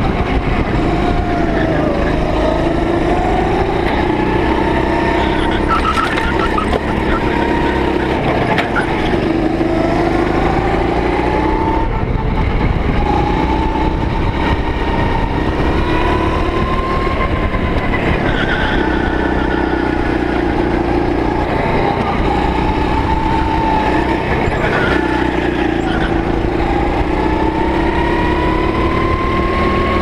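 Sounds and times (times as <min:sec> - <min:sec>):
go-kart engine running: 0:00.0 - 0:30.0.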